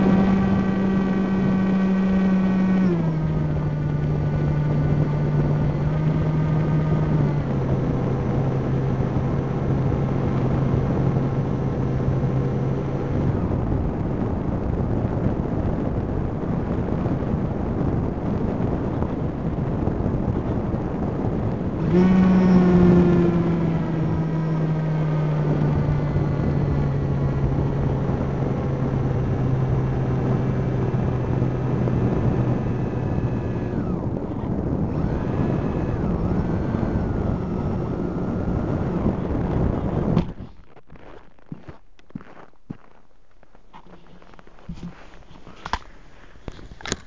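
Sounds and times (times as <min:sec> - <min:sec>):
drone propellers rushing: 0:00.0 - 0:11.4, 0:21.4 - 0:40.3
low droning tone: 0:00.0 - 0:43.0
wind on microphone: 0:00.0 - 0:43.0.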